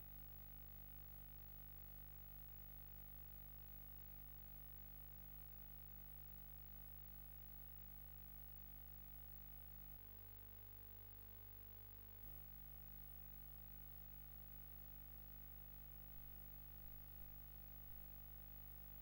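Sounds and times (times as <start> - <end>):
faint low hum: 14.1 - 19.0.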